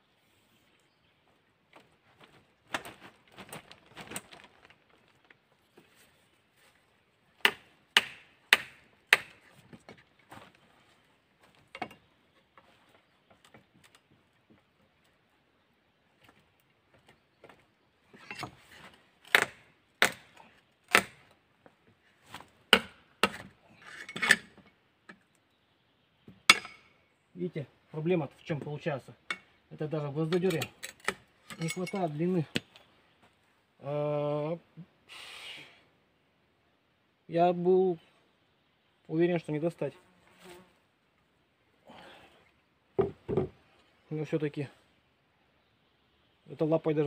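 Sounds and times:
hatchet striking metal shovel: 0:26.5 - 0:26.9.

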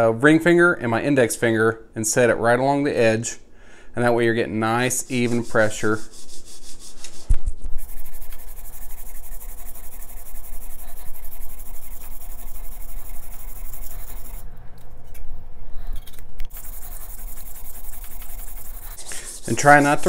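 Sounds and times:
scraper grinding on sharpening stone: 0:07.8 - 0:14.4, 0:16.5 - 0:20.0.

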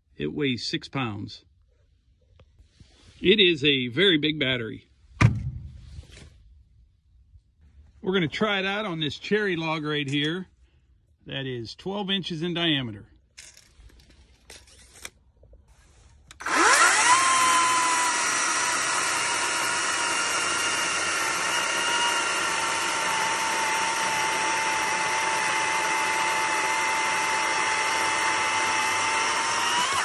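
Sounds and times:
electric chainsaw motor whine: 0:16.3 - 0:30.0
chain rasping through wood: 0:16.4 - 0:30.0.

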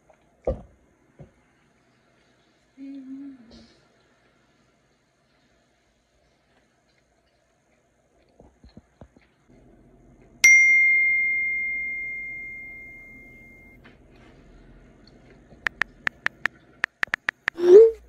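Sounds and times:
bell-like chime: 0:10.4 - 0:13.8.

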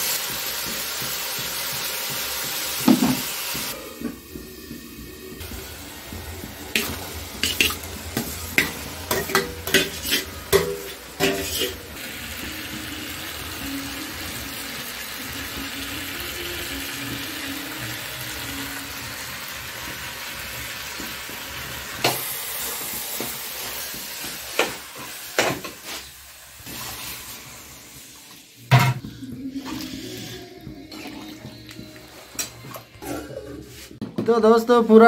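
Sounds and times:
potatoes sizzling in a pan: 0:00.0 - 0:28.7
water splashing into hot pan: 0:05.4 - 0:12.0.

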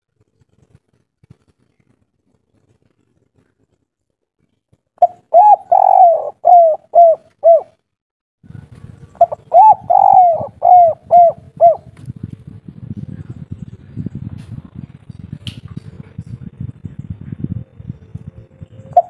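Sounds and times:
dove cooing: 0:05.0 - 0:07.8, 0:09.2 - 0:11.9.

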